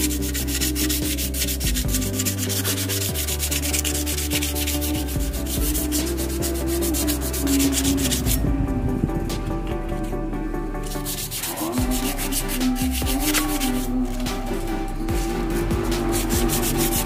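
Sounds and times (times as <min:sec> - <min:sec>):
sandpaper scratching: 0:00.0 - 0:17.0.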